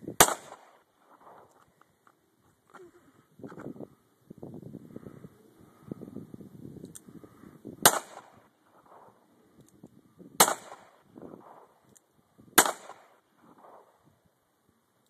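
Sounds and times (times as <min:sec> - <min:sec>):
revolver shots with echo: 0:07.8 - 0:08.4, 0:10.4 - 0:10.9.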